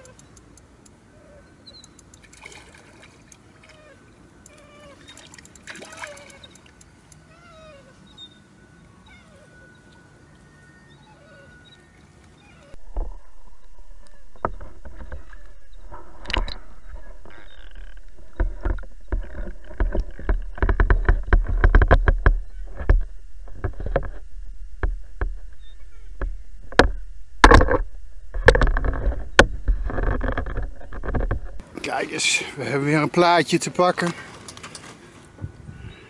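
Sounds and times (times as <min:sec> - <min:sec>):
fish splashing in water: 0:02.2 - 0:03.8, 0:04.8 - 0:06.8
steady low rumble: 0:12.7 - 0:31.6.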